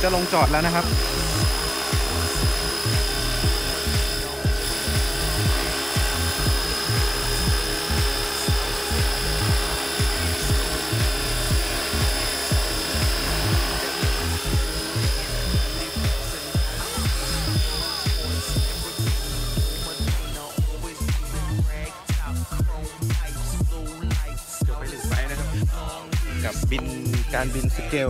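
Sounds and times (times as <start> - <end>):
model helicopter rotor whine: 0.0 - 24.6.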